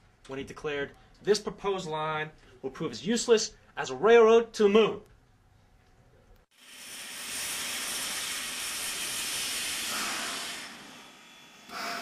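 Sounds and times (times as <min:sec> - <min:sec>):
steam locomotive hissing steam: 0:06.7 - 0:12.0.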